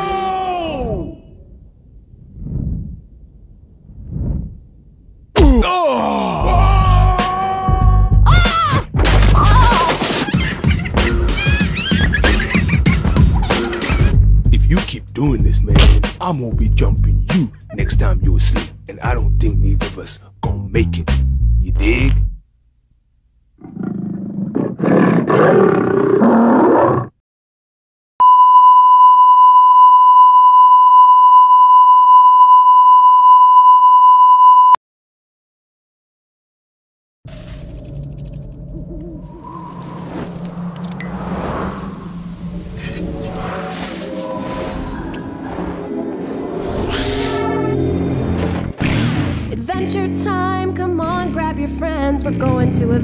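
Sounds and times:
gorilla roar: 0:05.4 - 0:08.8, 0:23.6 - 0:27.2.

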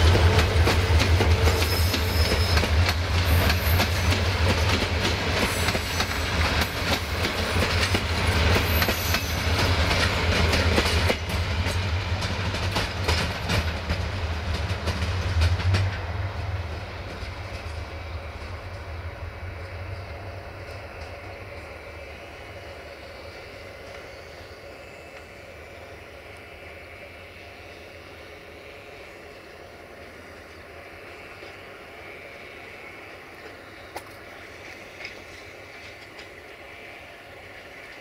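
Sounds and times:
train wheels clicking over rail joints: 0:00.0 - 0:18.9, 0:33.0 - 0:38.0
train rumble: 0:00.0 - 0:38.0.

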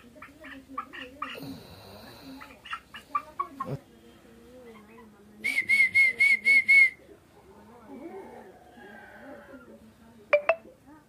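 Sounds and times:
hen clucking: 0:00.0 - 0:03.8
high-pitched chirps: 0:10.4 - 0:10.6.

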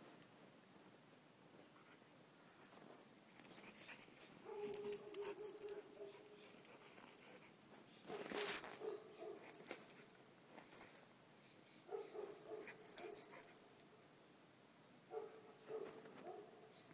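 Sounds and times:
scuffs on dirt: 0:07.2 - 0:11.1.

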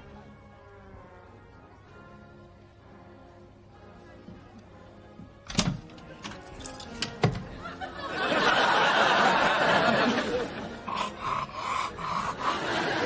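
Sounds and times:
audience laughing: 0:07.5 - 0:13.0.

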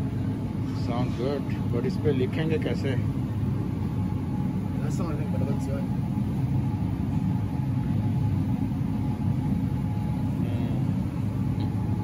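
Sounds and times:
machinery rumble with faint hum: 0:00.0 - 0:12.0.

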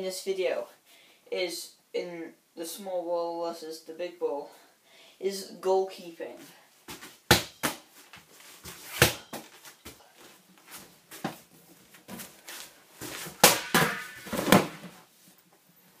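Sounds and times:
scuffling: 0:06.4 - 0:14.8
rubber ball bouncing thumps: 0:07.3 - 0:07.8.

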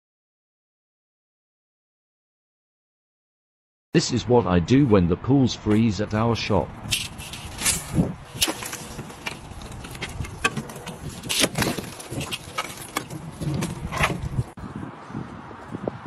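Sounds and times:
ice cracking: 0:07.0 - 0:14.5.

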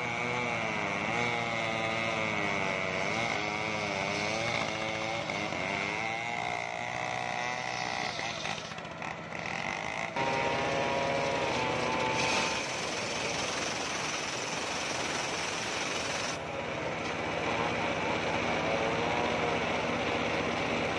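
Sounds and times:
circular sawmill ripping a log: 0:00.0 - 0:16.4
saw motor whine: 0:00.0 - 0:20.9.

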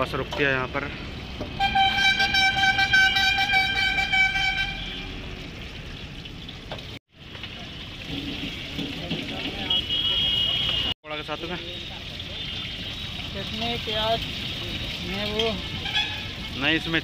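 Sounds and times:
road traffic noise: 0:00.0 - 0:17.0
vehicle horn held: 0:01.6 - 0:05.0.

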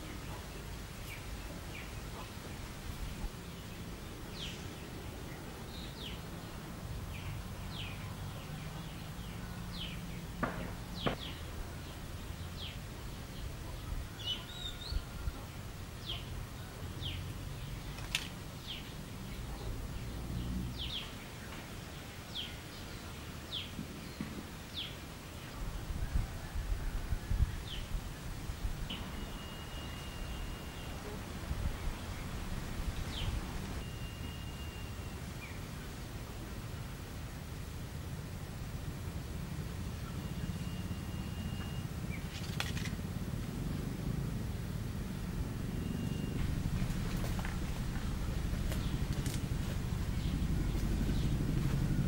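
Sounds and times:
bird chirping: 0:28.8 - 0:35.7, 0:40.0 - 0:42.9, 0:45.6 - 0:52.0
low steady rumble: 0:36.2 - 0:52.0.

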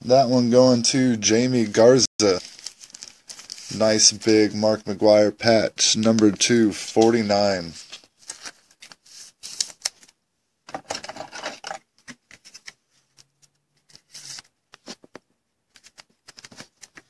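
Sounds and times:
trading card rustling and clicking: 0:06.0 - 0:17.0.

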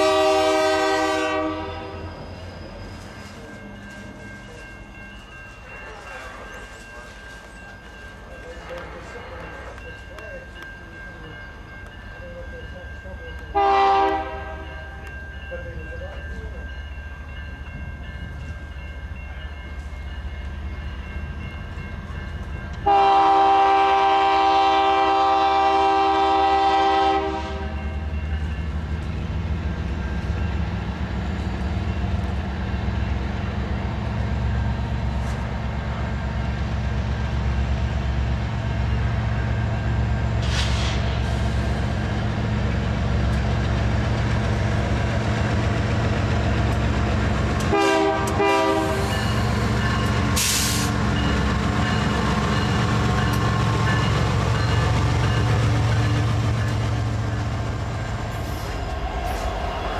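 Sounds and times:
locomotive air horn: 0:00.0 - 0:02.1, 0:13.6 - 0:14.8, 0:22.8 - 0:27.8, 0:47.6 - 0:49.3, 0:50.4 - 0:51.0
locomotive engine rumbling: 0:00.0 - 0:59.9
train wheels rumbling on rails: 0:00.0 - 0:59.9.

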